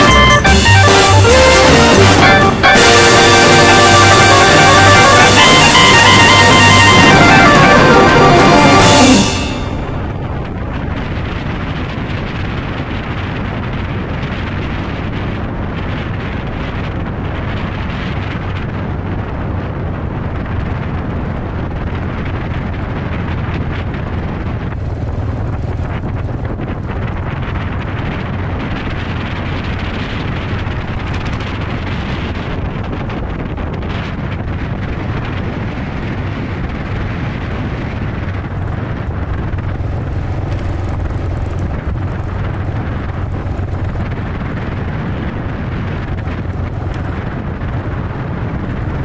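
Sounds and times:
motorcycle engine cruising: 0:00.0 - 0:49.0
wind buffeting microphone: 0:09.6 - 0:49.0.

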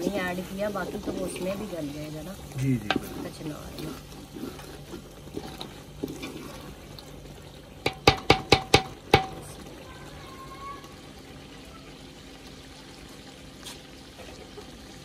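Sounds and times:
wooden spoon stirring curry: 0:00.0 - 0:09.8
spoon knocking on pot rim: 0:07.8 - 0:09.4.

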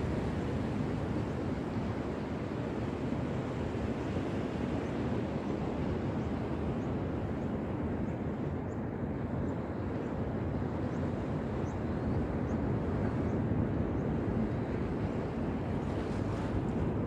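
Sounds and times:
ocean surf on a beach: 0:00.0 - 0:17.0
wind rumbling on microphone: 0:00.0 - 0:17.0.

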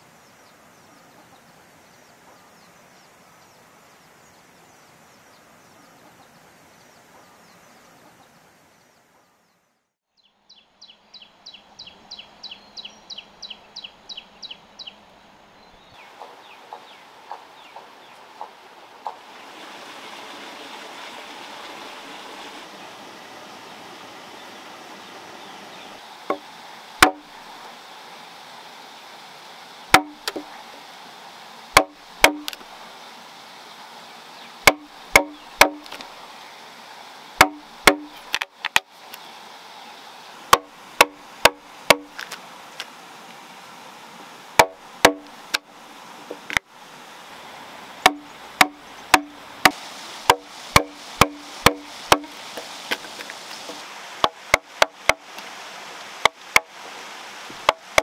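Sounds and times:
mallet striking chisel: 0:27.0 - 0:27.2, 0:29.9 - 0:30.4, 0:31.8 - 0:32.6, 0:34.7 - 0:36.0, 0:37.4 - 0:38.2, 0:40.5 - 0:42.1, 0:44.6 - 0:45.3, 0:48.1 - 0:49.3, 0:50.3 - 0:52.4.

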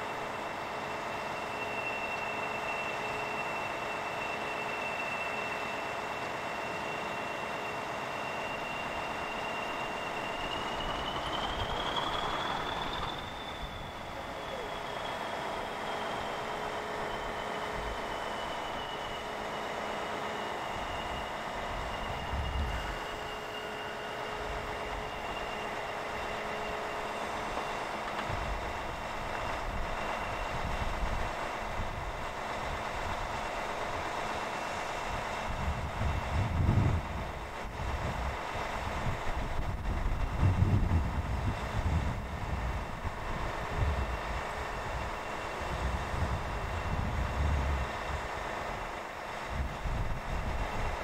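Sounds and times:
high whine: 0:00.0 - 0:34.0, 0:34.8 - 0:51.0
wind buffeting microphone: 0:09.2 - 0:14.9, 0:21.6 - 0:23.3, 0:28.2 - 0:34.1, 0:35.0 - 0:51.0.

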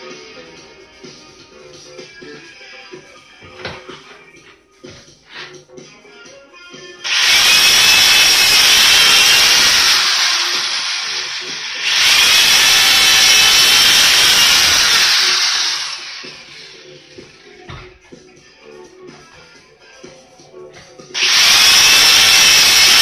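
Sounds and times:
power drill boring through wood: 0:07.0 - 0:17.4, 0:21.2 - 0:23.0.

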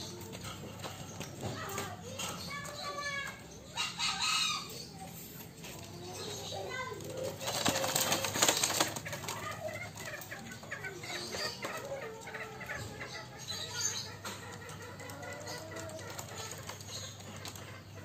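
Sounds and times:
soft wavering chicken calls: 0:00.0 - 0:18.0
hen flapping wings: 0:06.7 - 0:10.9.

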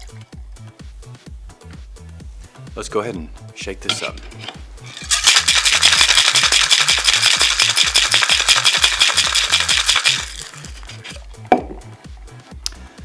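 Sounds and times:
music with bass beat: 0:00.0 - 0:13.0
ice rattling in cocktail shaker: 0:03.9 - 0:11.2.

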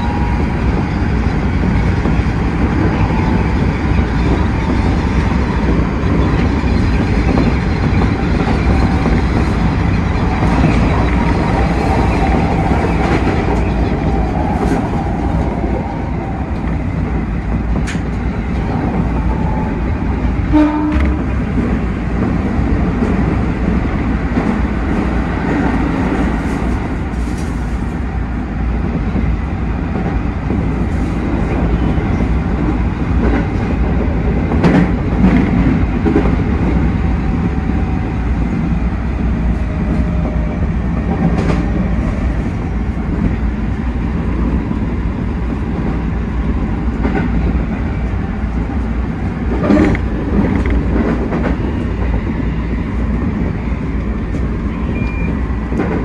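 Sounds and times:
train wheels rumbling on rail: 0:00.0 - 0:56.0
rail-joint clicks: 0:16.5 - 0:19.7, 0:20.6 - 0:28.0, 0:29.9 - 0:36.8, 0:41.0 - 0:42.5, 0:46.8 - 0:52.2, 0:52.9 - 0:56.0
brief pitched tone: 0:54.9 - 0:55.4.

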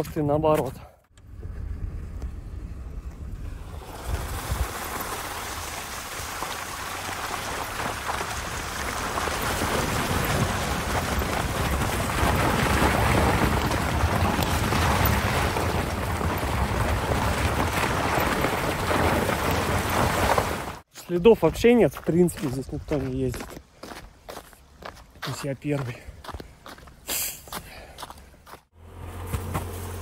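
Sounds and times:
car tyres with chains in slush: 0:03.4 - 0:20.8, 0:29.1 - 0:30.0.

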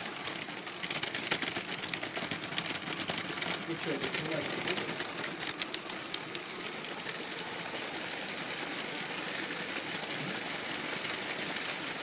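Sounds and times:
toy train motor whirring: 0:00.0 - 0:12.0
wheels rolling over track joints: 0:00.0 - 0:12.0.

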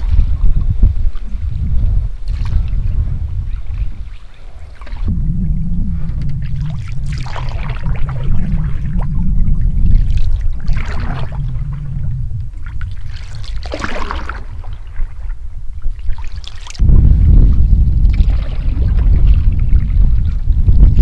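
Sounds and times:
steady low rumble: 0:00.0 - 0:21.0
canoe paddle splashing: 0:02.2 - 0:05.2, 0:05.9 - 0:11.8, 0:12.5 - 0:16.8.

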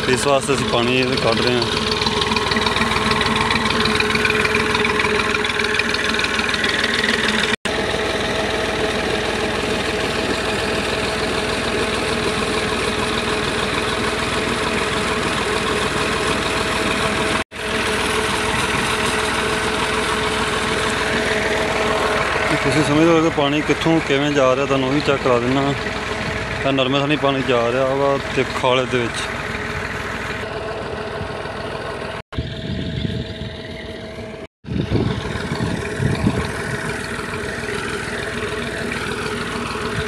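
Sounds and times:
tractor diesel engine running: 0:00.0 - 0:40.0.

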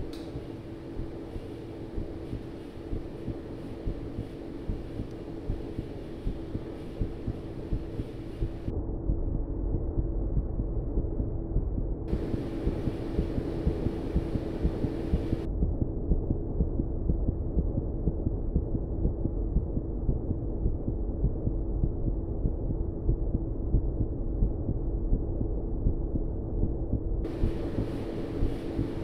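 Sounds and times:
muffled throbbing rumble: 0:00.0 - 0:29.0
bright hiss: 0:27.3 - 0:29.0.

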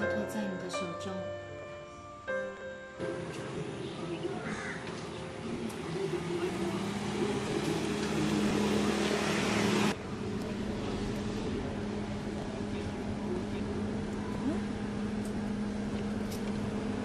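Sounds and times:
street traffic: 0:03.0 - 0:17.0
car engine running: 0:05.2 - 0:17.0.

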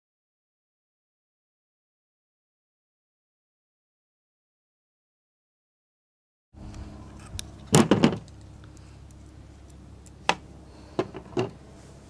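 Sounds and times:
steady low hum: 0:06.6 - 0:12.0.

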